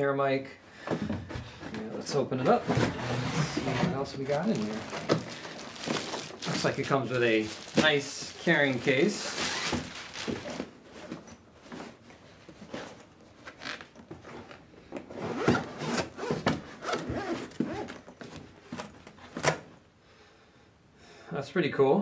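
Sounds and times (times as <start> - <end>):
case rubbing and scraping: 2.0 - 6.7
zipper rasping open: 15.2 - 18.0.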